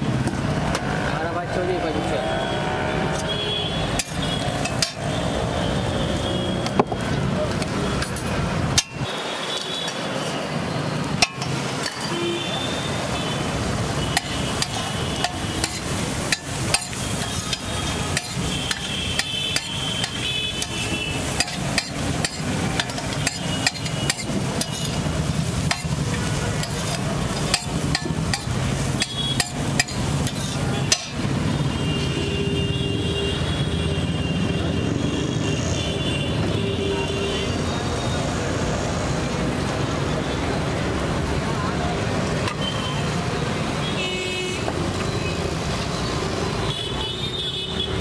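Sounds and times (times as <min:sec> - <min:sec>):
steady background noise: 0:00.0 - 0:48.0
metal spatula clacking on griddle: 0:04.0 - 0:05.1, 0:07.6 - 0:09.0, 0:11.2 - 0:12.1, 0:14.2 - 0:31.2.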